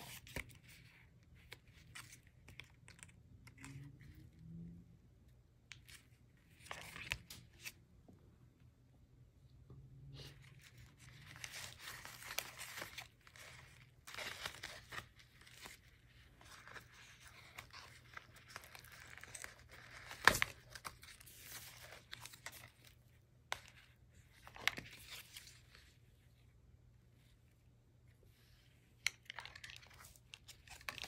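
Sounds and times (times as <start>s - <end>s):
paper pages rustling and crinkling: 5.7s - 7.8s, 10.4s - 26.5s, 28.4s - 31.0s.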